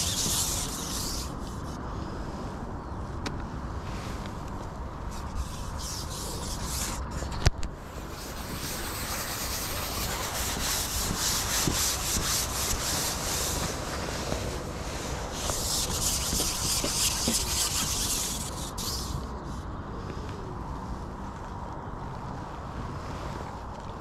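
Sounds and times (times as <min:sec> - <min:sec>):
fishing pole scraping: 0:00.0 - 0:01.8, 0:05.1 - 0:14.5, 0:15.3 - 0:19.3.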